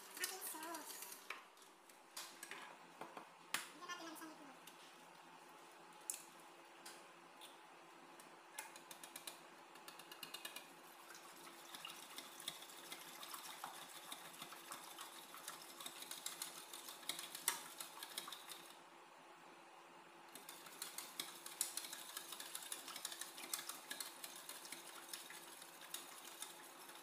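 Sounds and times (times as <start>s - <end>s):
whisk scraping metal pot: 11.4s - 18.7s, 20.4s - 27.0s.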